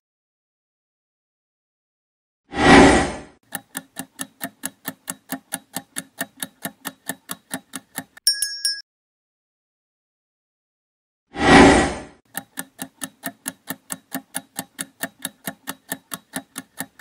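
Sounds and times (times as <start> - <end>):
fast clock ticks: 3.4 - 8.2, 12.3 - 17.0
bright bell chime: 8.3 - 8.8.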